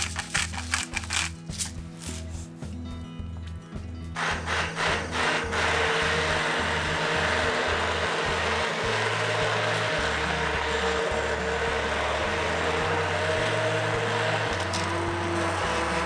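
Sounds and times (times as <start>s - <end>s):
immersion blender running: 4.2s - 16.0s.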